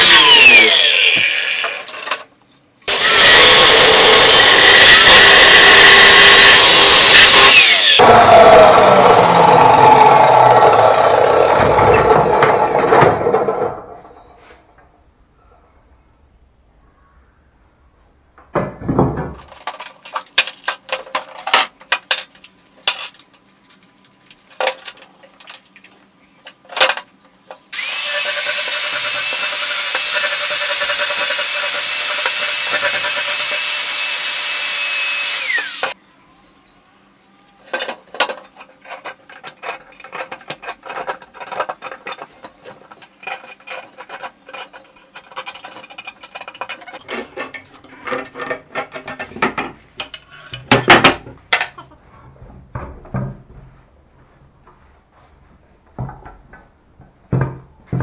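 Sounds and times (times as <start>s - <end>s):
angle grinder grinding metal: 0.0s - 2.1s, 2.9s - 13.6s, 27.8s - 36.0s
metal parts knocking and clinking: 37.7s - 51.8s.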